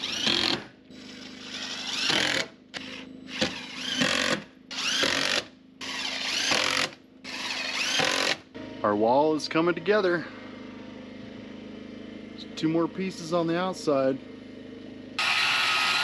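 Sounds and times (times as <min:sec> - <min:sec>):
cordless drill driving screws: 0:00.0 - 0:08.4, 0:15.2 - 0:16.0.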